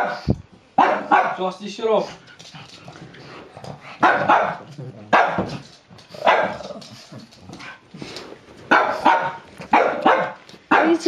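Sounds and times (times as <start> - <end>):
dog barking: 0.8 - 1.4, 4.0 - 5.5, 6.2 - 6.6, 8.7 - 11.0.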